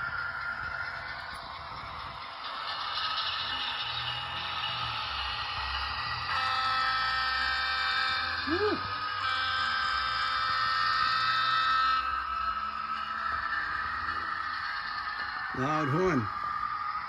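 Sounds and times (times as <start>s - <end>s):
rushing diesel engine sound: 0.0s - 17.0s
model train horn chord: 6.3s - 12.2s.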